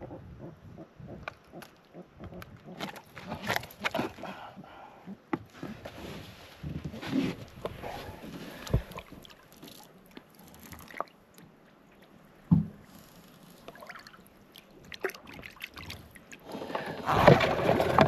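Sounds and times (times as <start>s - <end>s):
water splashing against boat: 7.0s - 11.2s.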